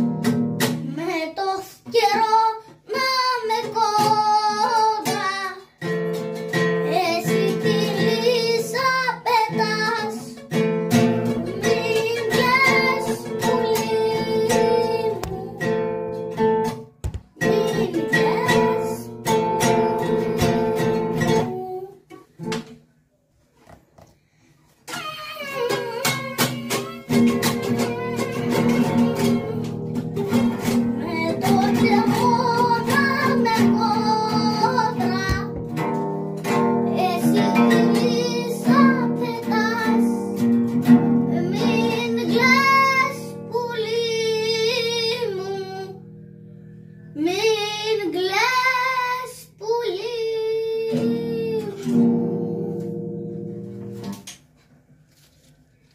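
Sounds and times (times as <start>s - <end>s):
plucked acoustic guitar: 0.0s - 22.8s, 24.8s - 47.4s, 50.6s - 54.4s
person singing: 6.8s - 10.5s, 11.1s - 16.1s, 17.4s - 22.2s, 24.9s - 35.6s, 36.9s - 40.4s, 41.3s - 46.0s, 47.2s - 53.0s.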